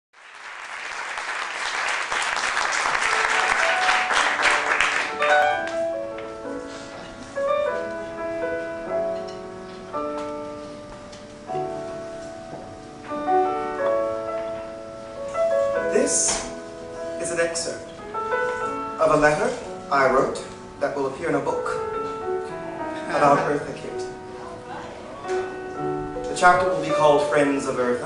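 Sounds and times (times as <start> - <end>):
audience applauding: 0.2 - 6.0
slow soft piano chords: 2.5 - 28.0.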